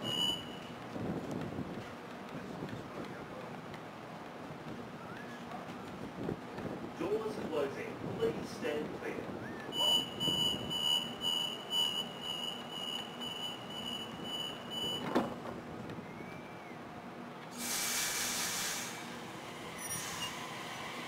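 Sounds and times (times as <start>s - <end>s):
high beeping tone: 0.0s - 0.7s, 9.7s - 15.1s
sliding doors thunking shut: 14.8s - 15.6s
train air hiss: 17.5s - 21.0s.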